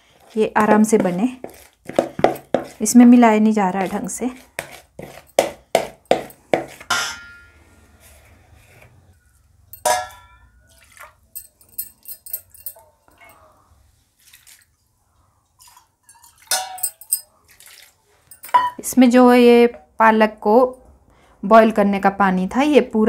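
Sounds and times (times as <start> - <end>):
steel vessel ringing clink: 6.9 - 7.6, 9.7 - 10.7, 16.1 - 17.3
liquid pouring and splashing: 10.7 - 11.4, 14.2 - 14.9, 15.6 - 18.5.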